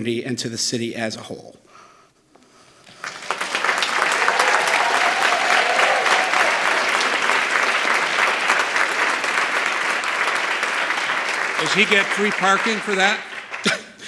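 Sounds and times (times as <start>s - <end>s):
audience applauding: 2.9s - 14.0s.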